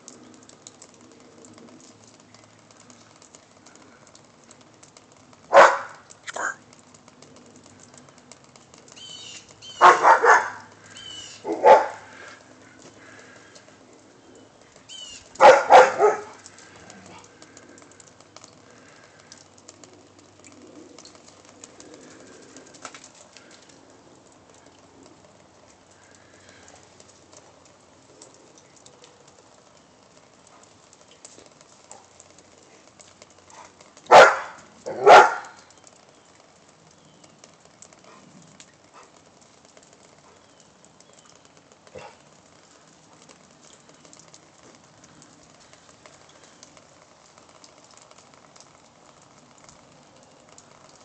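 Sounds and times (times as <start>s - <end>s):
dog barking: 5.5s - 6.6s, 9.8s - 10.7s, 11.4s - 12.1s, 15.4s - 16.4s, 33.6s - 35.6s, 42.0s - 42.2s
faint bird calls: 10.8s - 13.6s, 14.2s - 15.4s.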